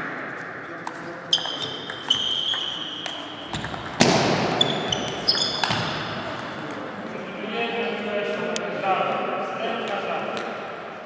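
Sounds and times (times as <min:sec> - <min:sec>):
ball pinging on table: 0:00.9 - 0:06.8
table tennis ball hits: 0:00.9 - 0:06.8.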